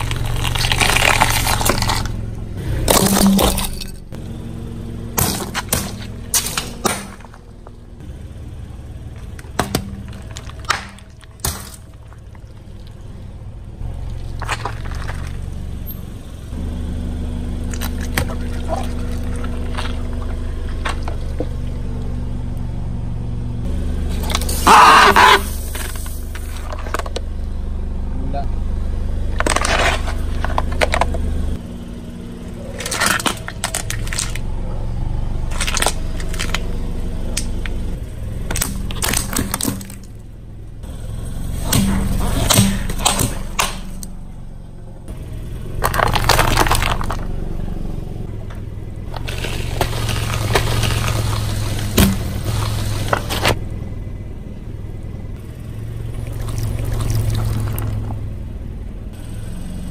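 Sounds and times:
plastic cracking under car tyre: 0.0s - 2.3s, 9.2s - 13.0s, 13.9s - 15.6s, 29.3s - 31.6s, 32.7s - 34.6s, 35.4s - 37.8s, 38.4s - 40.2s, 41.7s - 44.1s, 45.7s - 47.6s, 48.4s - 53.6s, 56.0s - 58.2s
car engine humming: 0.0s - 59.9s.

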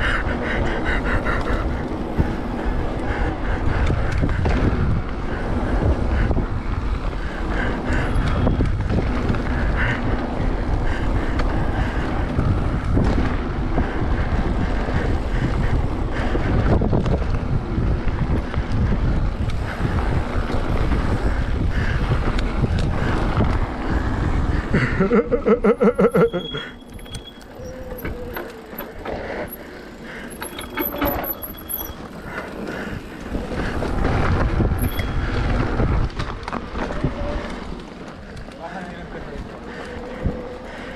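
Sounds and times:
wind rush on microphone: 0.0s - 40.9s
tyres rolling over dirt and stones: 27.0s - 40.9s.

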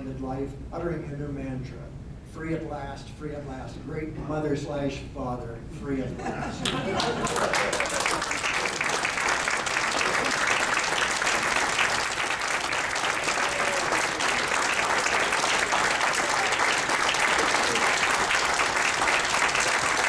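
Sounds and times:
audience applauding: 6.6s - 20.0s.

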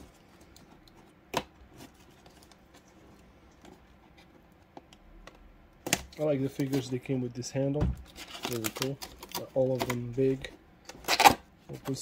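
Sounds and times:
cardboard rustling: 8.0s - 10.5s.

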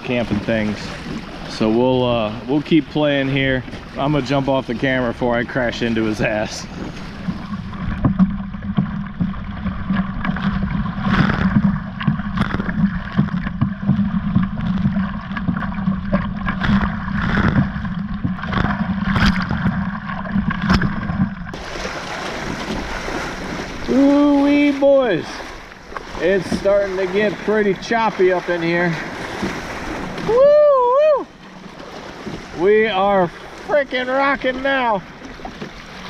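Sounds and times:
waves slapping against hull: 0.0s - 36.0s
person's voice: 23.9s - 25.4s.

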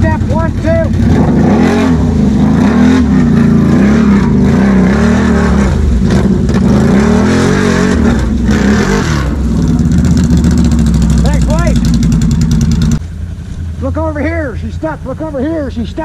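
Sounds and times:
atv engine revving: 0.0s - 13.1s.

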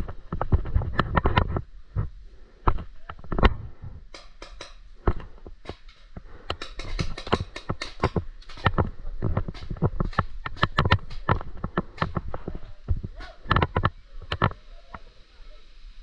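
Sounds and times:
gear knocking and rattling: 4.2s - 14.5s.

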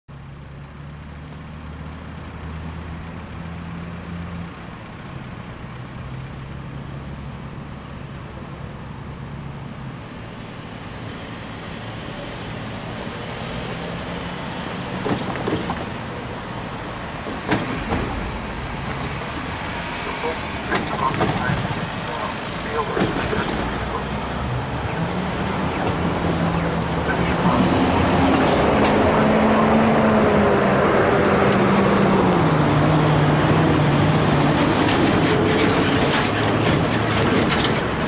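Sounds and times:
vehicles passing: 0.1s - 38.0s
sharp knocks: 17.3s - 19.2s.

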